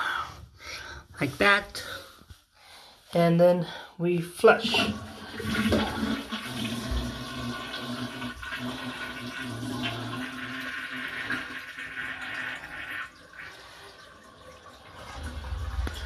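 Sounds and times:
toilet flushing: 4.5 - 16.0.

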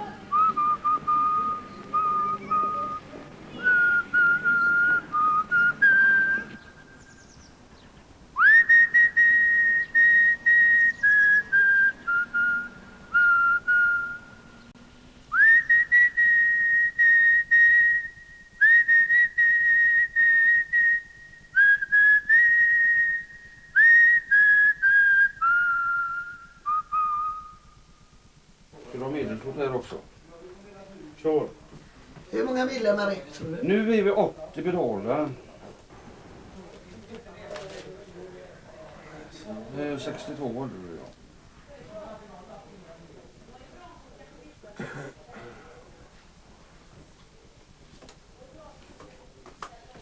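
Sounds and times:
person whistling a slow tune: 0.3 - 7.0, 8.4 - 14.4, 15.3 - 27.8.

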